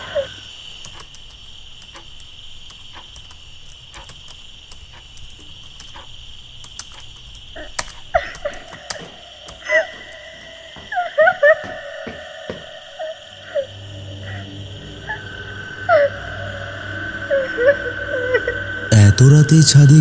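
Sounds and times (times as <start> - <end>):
crickets chirring: 0.0 - 20.0
sharp clicks: 0.7 - 10.3.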